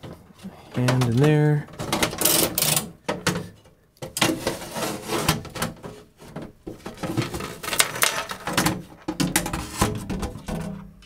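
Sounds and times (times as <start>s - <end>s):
metal case knocking and scraping: 4.2s - 10.9s.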